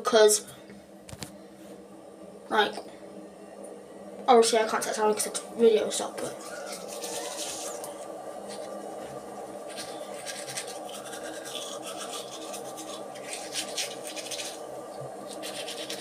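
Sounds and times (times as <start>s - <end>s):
toothbrush scrubbing teeth: 6.4s - 8.8s, 9.7s - 16.0s.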